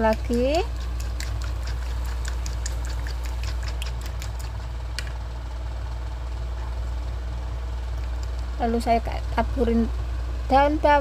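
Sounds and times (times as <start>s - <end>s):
spatula stirring batter in bowl: 0.0s - 4.8s
steady low hum: 0.0s - 11.0s.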